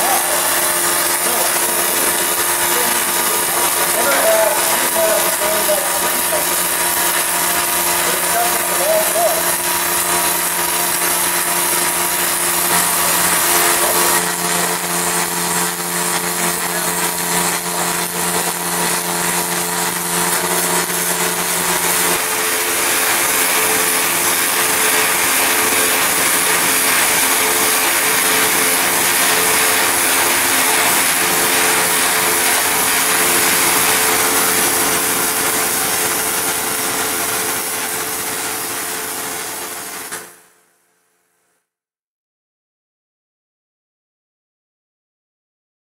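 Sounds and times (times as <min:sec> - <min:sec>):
electrical hum: 0:00.0 - 0:40.1
welding arc hiss and crackle: 0:00.0 - 0:40.4.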